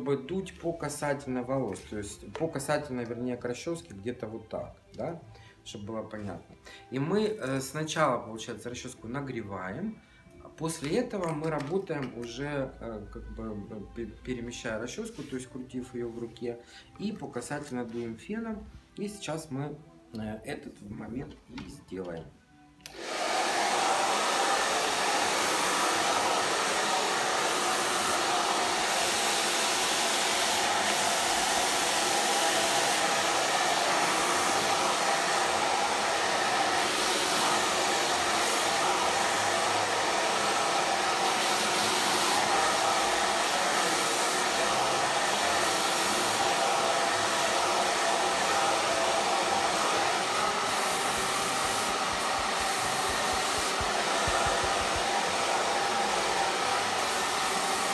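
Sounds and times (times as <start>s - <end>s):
hair dryer blowing: 22.8s - 57.9s.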